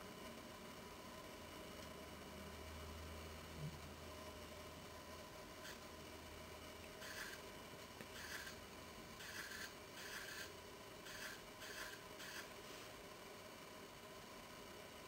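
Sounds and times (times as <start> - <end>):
fingertip rubbing on glass screen: 7.0 - 7.4, 8.1 - 8.6, 9.2 - 10.5, 11.1 - 12.5.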